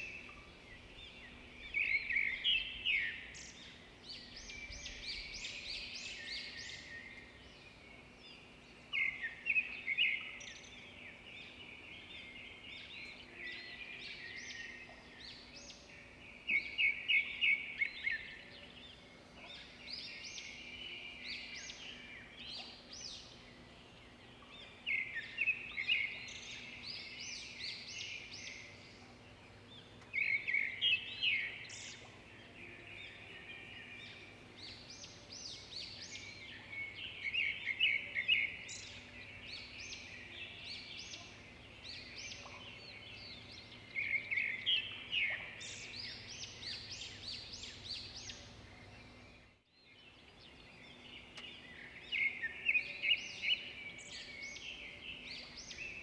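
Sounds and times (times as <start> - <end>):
birds chirping: 0.0 - 56.0
birds chattering softly: 34.0 - 56.0.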